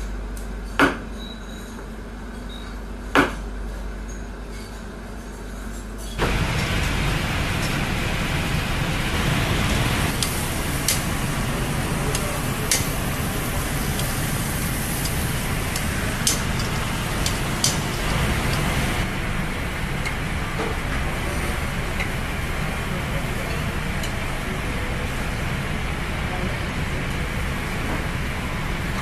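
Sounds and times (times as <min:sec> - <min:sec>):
steaks sizzling on grill: 0:06.2 - 0:19.1.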